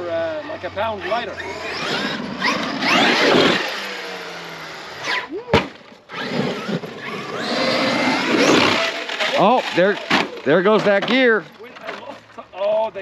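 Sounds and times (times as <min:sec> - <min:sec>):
rc truck motor whine: 0:00.0 - 0:05.3, 0:06.0 - 0:10.4
sharp crack: 0:05.4 - 0:06.0.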